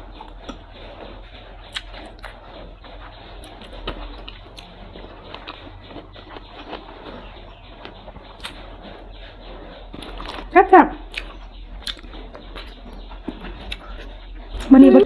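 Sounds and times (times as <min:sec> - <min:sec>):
close chewing with wet mouth sounds: 0:00.0 - 0:15.0
sharp clicks and smacks: 0:03.0 - 0:14.1.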